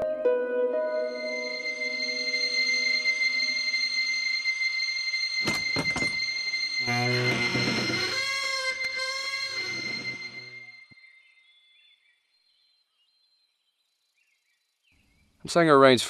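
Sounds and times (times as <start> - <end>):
door creaking open: 5.4 - 10.7.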